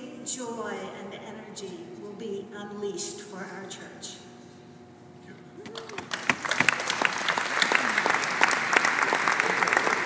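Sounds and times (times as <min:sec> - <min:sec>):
audience applauding: 0:05.7 - 0:10.0.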